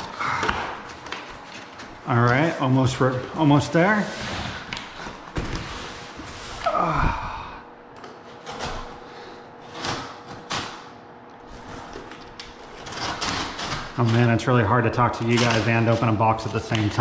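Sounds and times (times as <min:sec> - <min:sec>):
person grunting: 0:00.0 - 0:00.8, 0:06.6 - 0:07.8.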